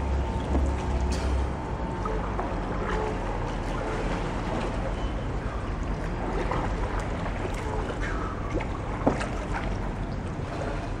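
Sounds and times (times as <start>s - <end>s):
water lapping around hull: 0.0s - 11.0s
paddle splashing in water: 6.0s - 11.0s.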